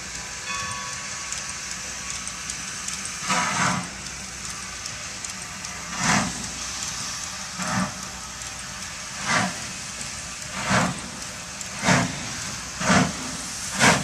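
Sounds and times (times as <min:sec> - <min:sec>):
steam locomotive exhaust chuffs: 0:00.0 - 0:14.0.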